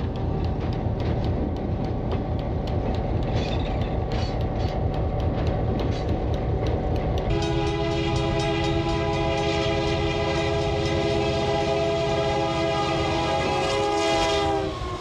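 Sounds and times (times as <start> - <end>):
train wheels clicking over rail joints: 0.0 - 11.7
diesel locomotive engine rumble: 0.0 - 15.0.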